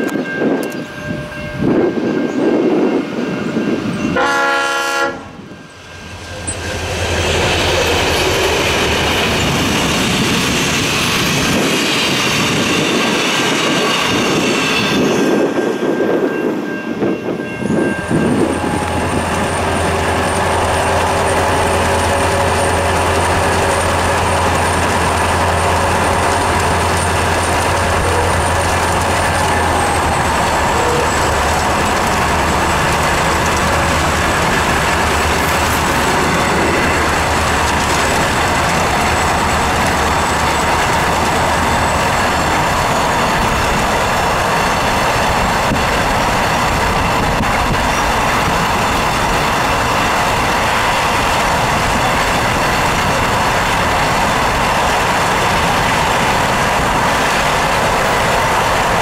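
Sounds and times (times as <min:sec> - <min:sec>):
train carriages rumbling past: 0:00.0 - 0:59.0
wheels clicking over rail joints: 0:18.4 - 0:59.0.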